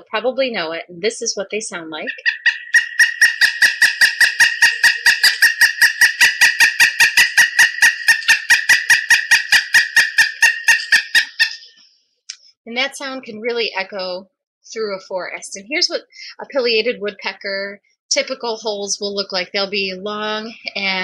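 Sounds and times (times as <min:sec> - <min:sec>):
woodpecker calling rapid notes: 0:02.1 - 0:11.8.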